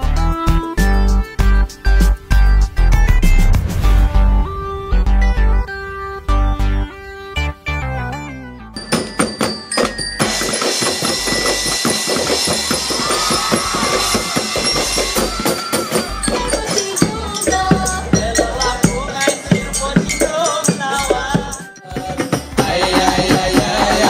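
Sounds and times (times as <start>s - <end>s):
melody: 2.7s - 10.8s
fast drum beat: 9.0s - 24.0s.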